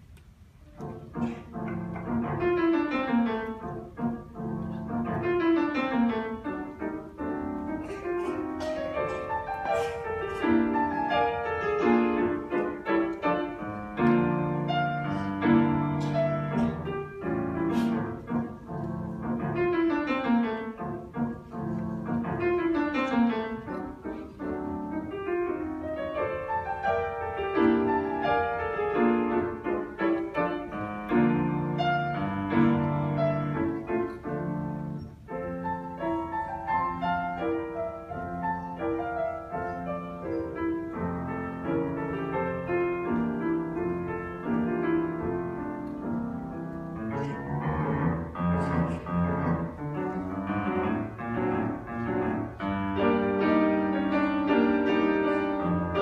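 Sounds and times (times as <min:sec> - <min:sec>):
grand piano playing: 0:00.0 - 0:56.0.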